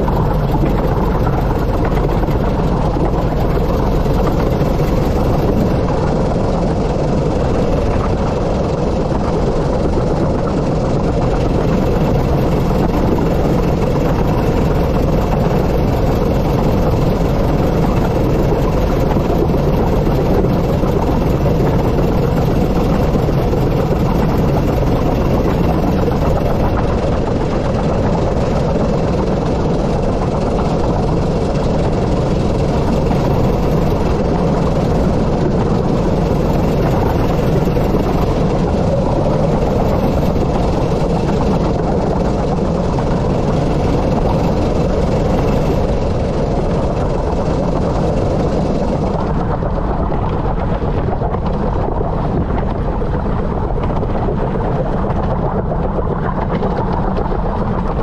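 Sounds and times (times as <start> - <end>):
steam locomotive running: 0.0 - 49.4.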